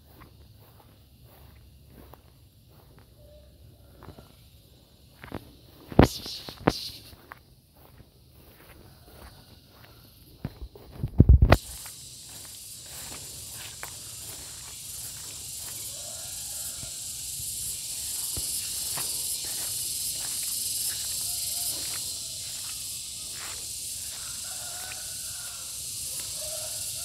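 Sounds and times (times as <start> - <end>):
cicada buzzing: 0.0 - 27.0
footsteps through undergrowth: 0.0 - 27.0.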